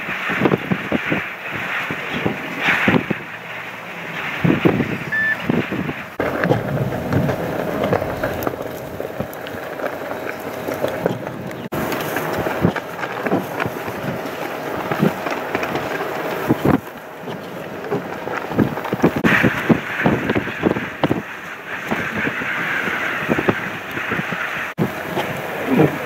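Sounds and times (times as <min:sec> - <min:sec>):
wind gusting against microphone: 0:00.0 - 0:26.0.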